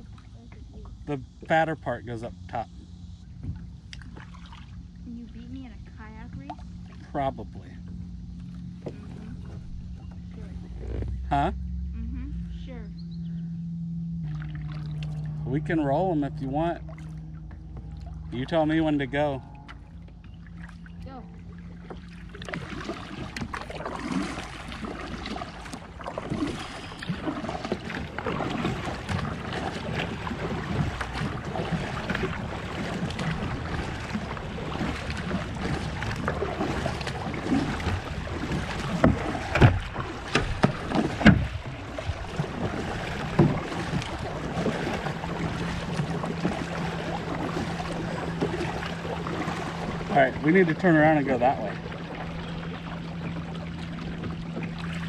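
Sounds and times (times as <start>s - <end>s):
water lapping along hull: 0.0s - 55.0s
paddle splashing through water: 3.4s - 5.6s, 6.4s - 11.4s, 14.2s - 55.0s.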